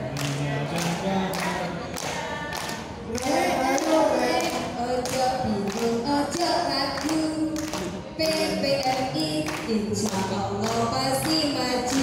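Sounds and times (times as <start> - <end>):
hand claps: 0.1 - 12.0
women singing a cappella: 1.0 - 12.0.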